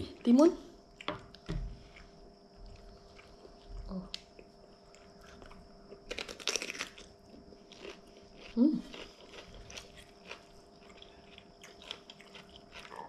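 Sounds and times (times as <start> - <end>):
crunchy bite into cucumber: 6.1 - 7.1.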